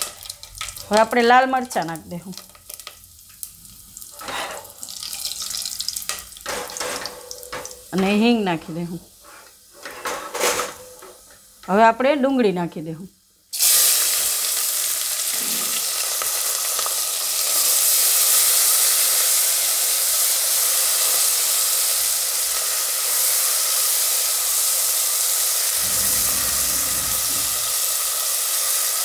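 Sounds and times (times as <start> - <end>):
onions sizzling in oil: 0.0 - 6.5, 13.2 - 29.0.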